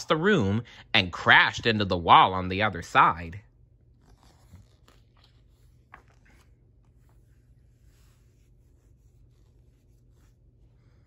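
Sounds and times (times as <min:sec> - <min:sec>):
paper page turning: 0:03.8 - 0:08.3.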